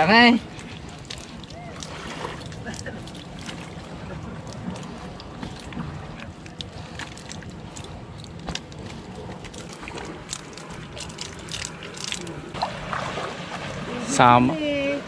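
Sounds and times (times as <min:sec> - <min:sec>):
wet net clicking and rustling: 0:06.4 - 0:12.4.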